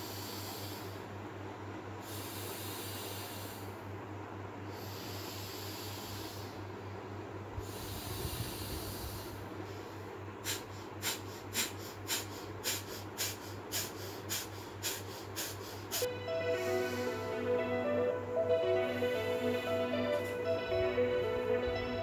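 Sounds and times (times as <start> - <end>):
nasal breathing: 0.0 - 1.1, 2.0 - 3.8, 4.7 - 6.7, 7.6 - 16.1
forceful nasal exhalations: 7.6 - 16.1.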